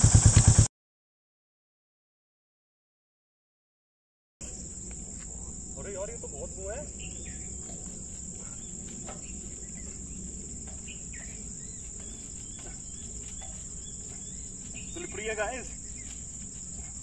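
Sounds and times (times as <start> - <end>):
insects droning: 4.4 - 17.0
low background hum: 4.4 - 17.0.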